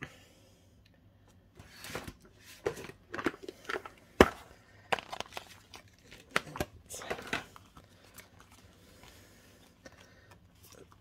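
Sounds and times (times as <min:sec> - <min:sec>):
plastic packet crinkling: 0:04.8 - 0:11.0.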